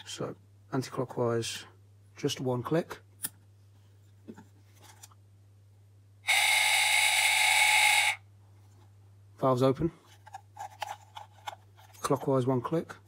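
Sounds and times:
small motor whirring through gears: 0:06.3 - 0:08.2.

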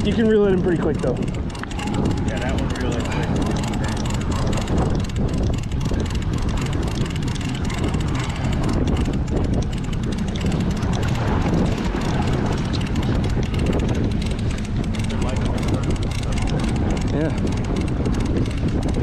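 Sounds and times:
outboard motor running: 0:00.0 - 0:19.0
water churning: 0:00.0 - 0:19.0
wind on microphone: 0:00.0 - 0:19.0.

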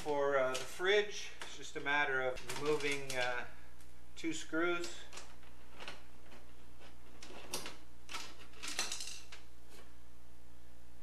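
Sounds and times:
steady low hum: 0:00.0 - 0:11.0
metallic scrapes and clicks: 0:04.8 - 0:09.8.

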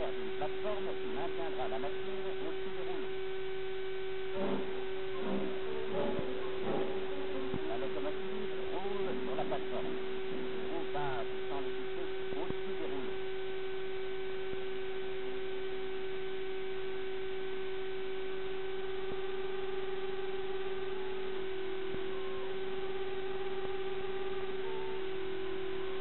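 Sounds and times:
constant hiss: 0:00.0 - 0:14.1
faint wavering voice-like sounds: 0:00.0 - 0:14.2, 0:18.6 - 0:26.0
steady hum: 0:00.0 - 0:26.0.

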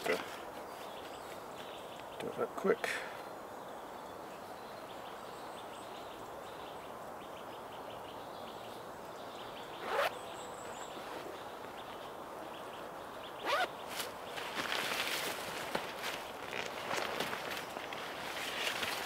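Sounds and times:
steady background hiss: 0:00.0 - 0:19.0
clothing zip pulled quickly: 0:09.8 - 0:10.1, 0:13.4 - 0:13.7.

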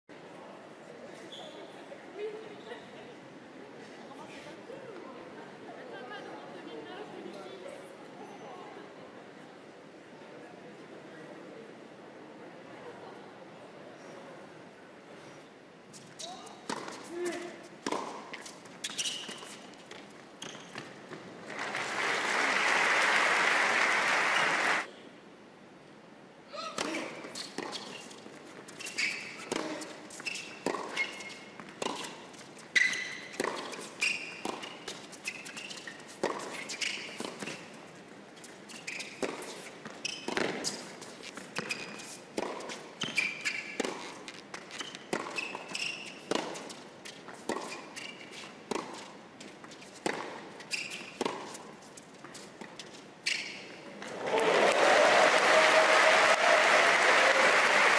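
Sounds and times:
shoes squeaking on court: 0:01.1 - 0:01.8, 0:15.9 - 0:21.4, 0:26.8 - 0:54.1
crowd applause: 0:21.4 - 0:24.9, 0:54.0 - 0:57.9
racket hitting tennis ball: 0:28.8 - 0:32.3, 0:33.2 - 0:37.7, 0:39.0 - 0:49.2, 0:50.0 - 0:51.7
ball bouncing on court: 0:39.0 - 0:40.8.

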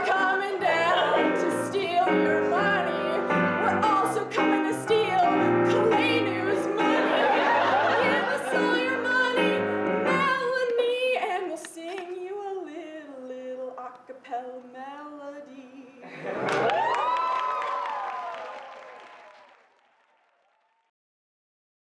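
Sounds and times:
woman singing: 0:00.0 - 0:16.1.

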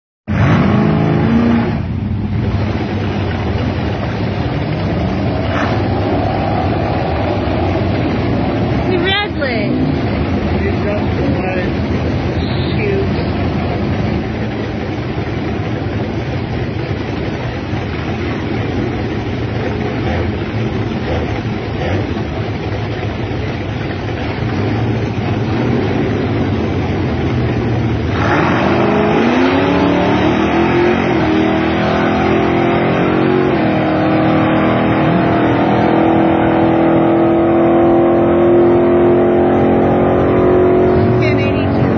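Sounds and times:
drag car engine rumbling: 0:00.3 - 0:41.9.

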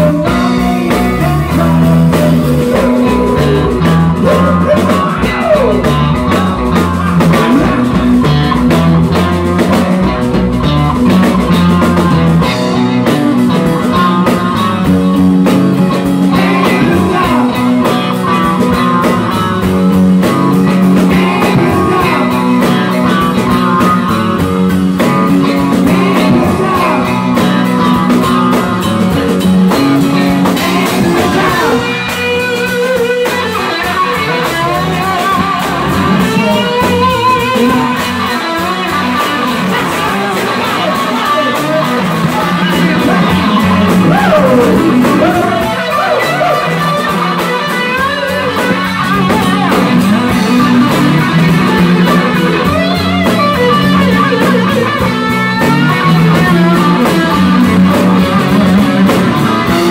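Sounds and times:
live rock band instrumental: 0:00.0 - 0:59.9.

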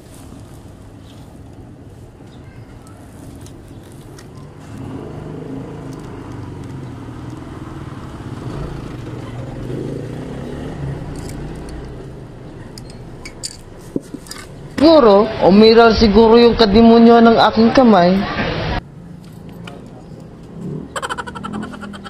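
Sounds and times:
vehicle engine humming: 0:00.0 - 0:17.2, 0:18.1 - 0:22.0.

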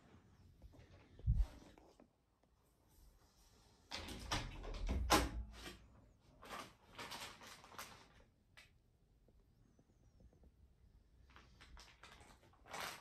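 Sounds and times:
rustling and scraping: 0:00.0 - 0:02.1.

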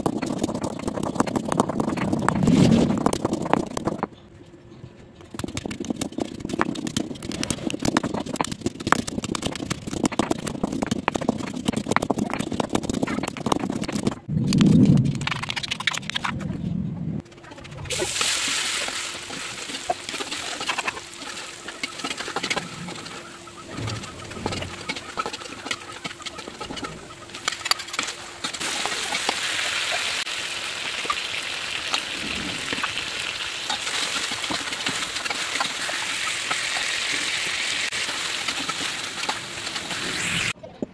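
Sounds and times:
oil sizzling in a wok: 0:28.6 - 0:40.6.

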